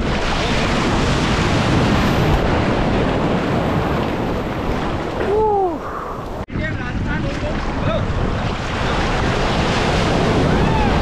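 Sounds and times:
breaking wave rushing surf: 7.5 - 11.0.

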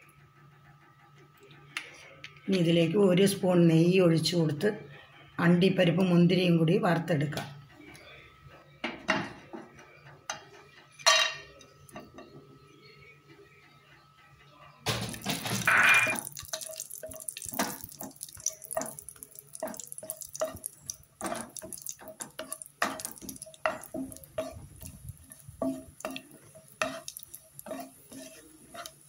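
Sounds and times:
nuts sizzling in oil: 14.9 - 29.0
spatula clattering: 14.9 - 29.0
spatula scraping and tapping pan: 14.9 - 29.0.

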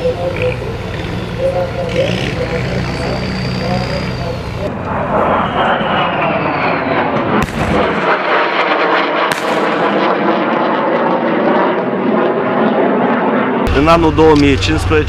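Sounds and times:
fighter jet engine roar: 0.0 - 15.0.

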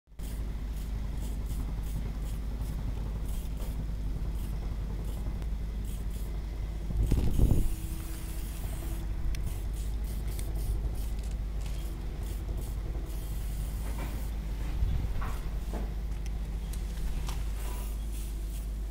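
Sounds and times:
spray can hissing: 0.2 - 3.8, 5.8 - 6.3, 7.0 - 14.4, 17.8 - 18.8
low rumble: 0.6 - 17.6.

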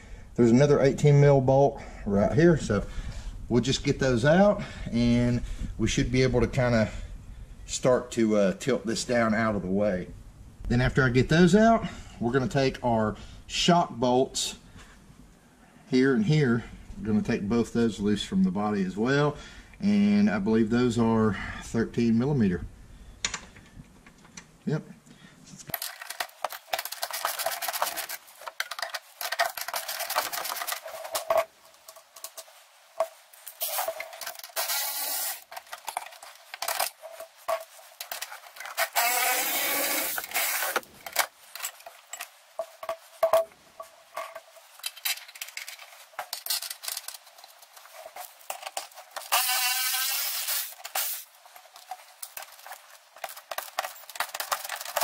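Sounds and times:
electric ratchet motor whir: 34.6 - 35.4, 38.8 - 40.8, 49.3 - 51.2
rapid ratcheting clicks: 49.2 - 51.2.

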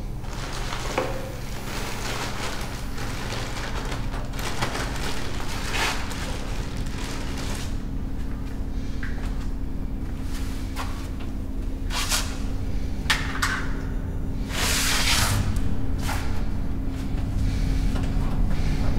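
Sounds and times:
low steady drone hum: 0.0 - 18.9
rushing crackling noise: 0.2 - 7.9.

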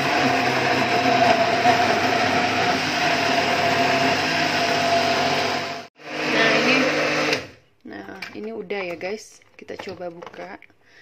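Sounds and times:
blender motor whining: 0.0 - 7.6.

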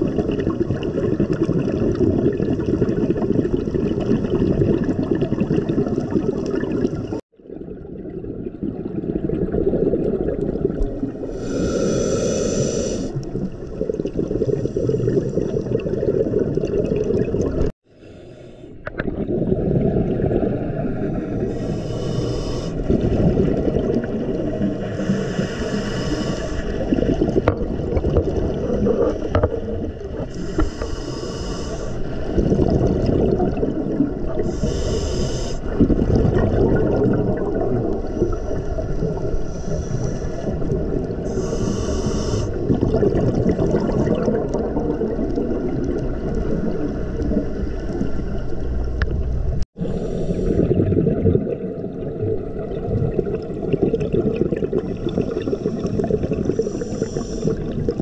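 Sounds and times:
scuba bubbles hissing: 9.6 - 17.7, 19.2 - 29.4, 30.0 - 47.8, 52.5 - 58.0
muffled underwater rumble: 18.6 - 58.0.

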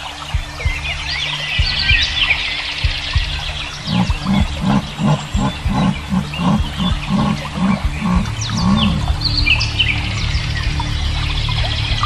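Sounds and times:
birds chirping: 0.2 - 12.0
animal grunting call: 3.8 - 9.2.

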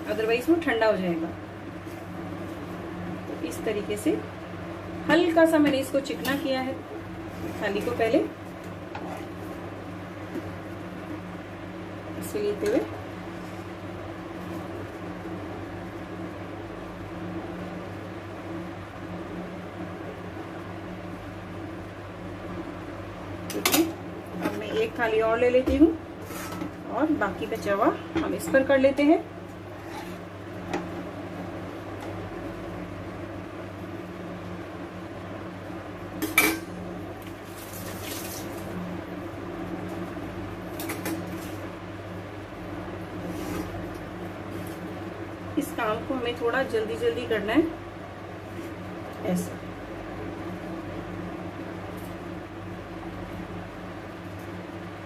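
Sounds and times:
low mechanical hum: 0.0 - 55.0
spatula scraping across plate: 26.2 - 26.8, 29.6 - 30.3.

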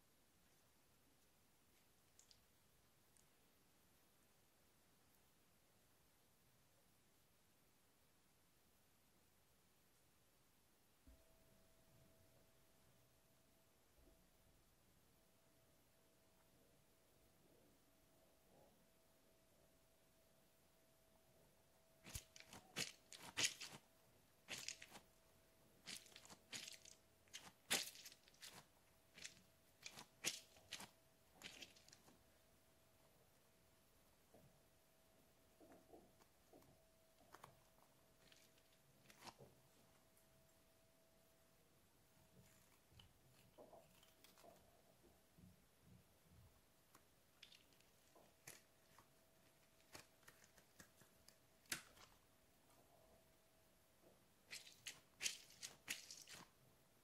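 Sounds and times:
rubber toy clicking and crackling: 25.9 - 32.1, 54.5 - 56.5.

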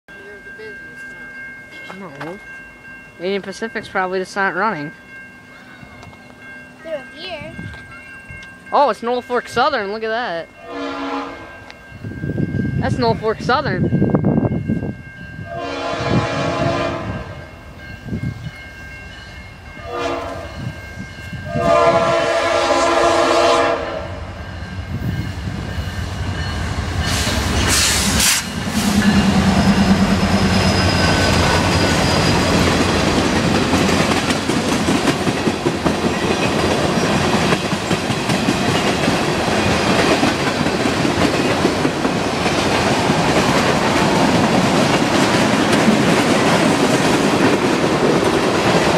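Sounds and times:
train air horn blasts: 10.6 - 11.6, 15.4 - 17.4, 19.8 - 20.5, 21.4 - 24.3
train wheels rumbling and clattering: 24.0 - 48.9.

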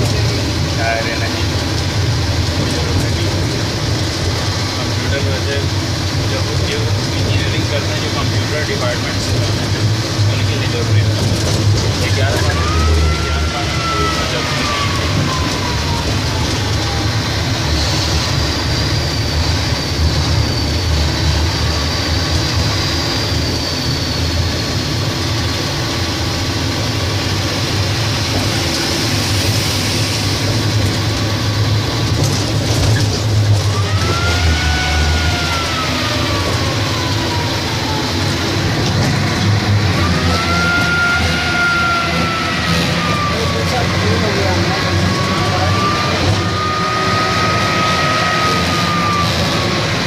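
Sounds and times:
diesel truck engine running: 0.0 - 50.0
rising and falling whine: 12.0 - 50.0.

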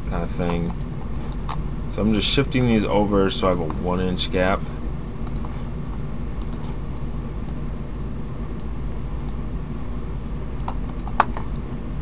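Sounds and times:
low background hum: 0.0 - 12.0
computer mouse clicks: 2.6 - 3.8, 5.2 - 5.6, 6.4 - 7.6, 10.6 - 11.5.

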